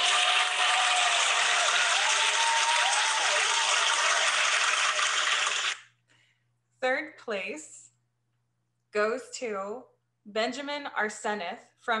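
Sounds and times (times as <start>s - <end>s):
crowd applause: 0.0s - 5.8s
crowd cheering: 0.0s - 5.8s.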